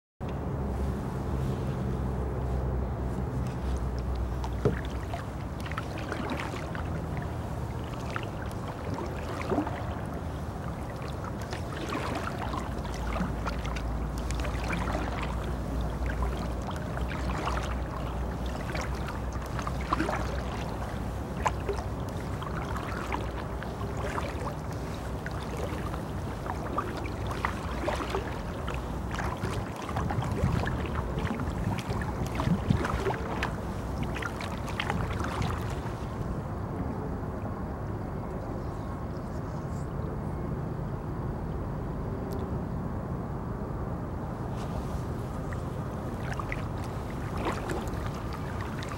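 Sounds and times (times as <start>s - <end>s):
steady low rumble: 0.2s - 48.9s
paddle splashing water: 0.7s - 36.4s, 44.4s - 48.9s.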